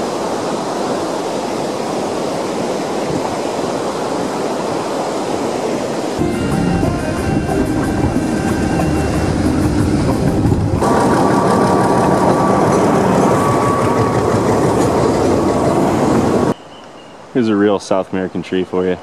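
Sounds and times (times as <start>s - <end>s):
train running on rails: 0.0s - 16.6s
high-pitched wheel squeal: 6.2s - 16.6s.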